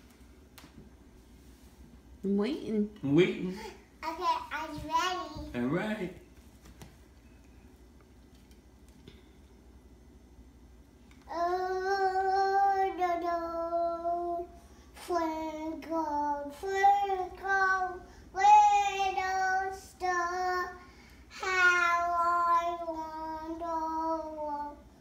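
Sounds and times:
young child singing: 0:11.3 - 0:24.9.

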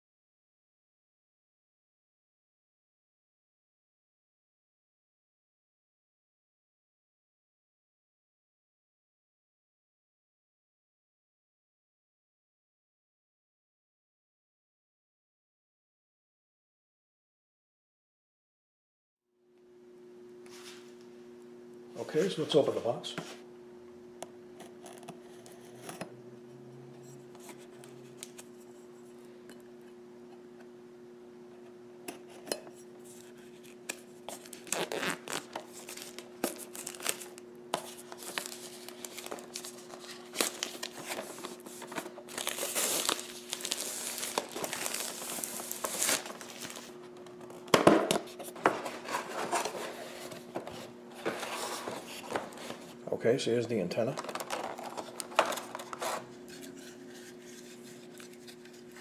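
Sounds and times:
faint steady hum: 0:19.4 - 0:59.0
plastic wrap crinkling: 0:33.1 - 0:47.6, 0:54.0 - 0:59.0.

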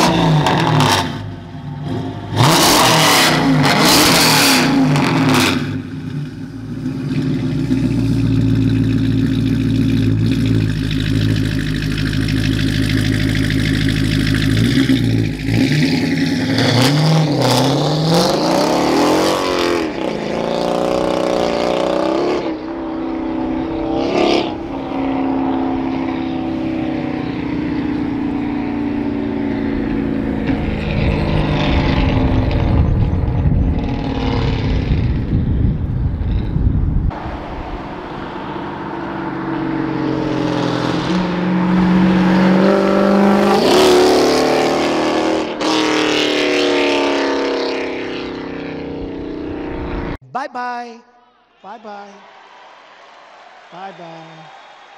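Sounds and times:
car exhaust rumble driving by: 0:00.0 - 0:50.2.

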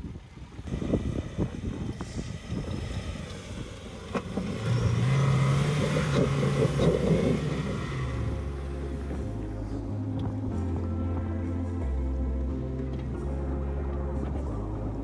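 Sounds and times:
diesel engine under load: 0:00.0 - 0:11.2.

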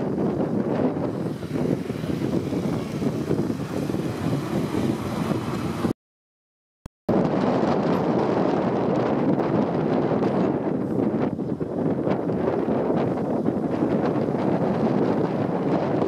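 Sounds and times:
moped ride rumble: 0:00.0 - 0:05.9
traffic: 0:00.0 - 0:06.0
wind buffeting microphone: 0:00.0 - 0:06.0, 0:07.1 - 0:16.0.

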